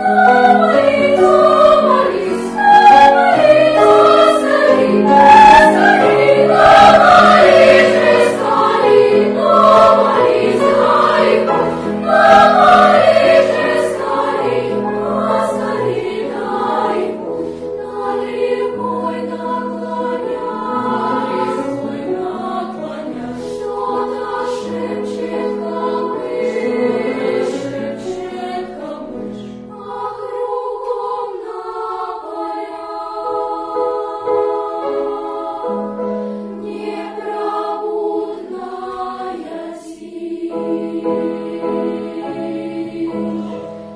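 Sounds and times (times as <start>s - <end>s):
children's choir singing: 0.0s - 43.9s.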